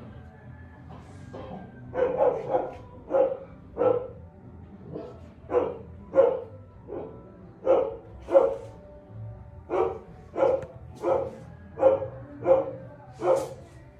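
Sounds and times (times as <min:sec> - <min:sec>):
dog barking: 0:01.5 - 0:04.2, 0:04.9 - 0:08.8, 0:09.7 - 0:13.7.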